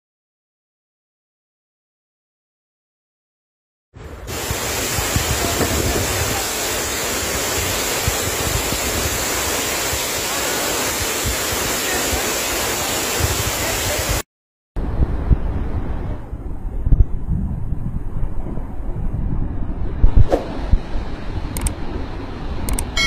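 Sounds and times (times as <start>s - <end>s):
waterfall rushing: 4.0s - 14.2s
wind buffeting microphone: 4.0s - 14.2s, 14.8s - 23.0s.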